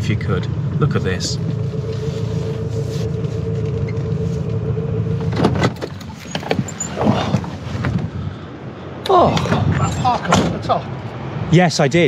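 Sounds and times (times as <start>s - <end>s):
van engine idling: 0.0s - 8.7s.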